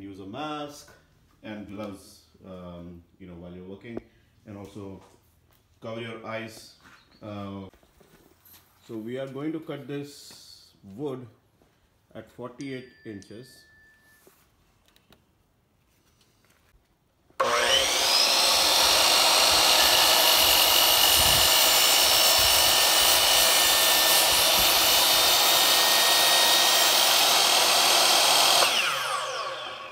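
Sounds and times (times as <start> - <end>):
miter saw cutting wood: 17.4 - 29.9.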